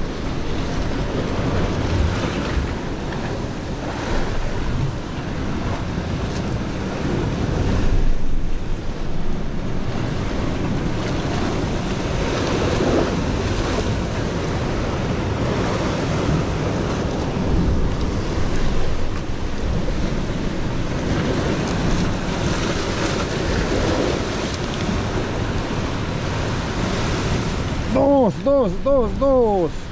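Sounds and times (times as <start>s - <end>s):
sea surf washing through rocks: 0.0s - 29.9s
wind rumbling on microphone: 0.0s - 29.9s.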